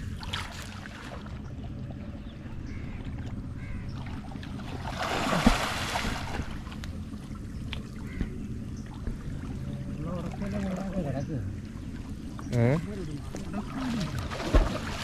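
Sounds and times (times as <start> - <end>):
water sloshing from wading: 0.0 - 15.0
big water splash: 4.7 - 6.6, 13.8 - 15.0.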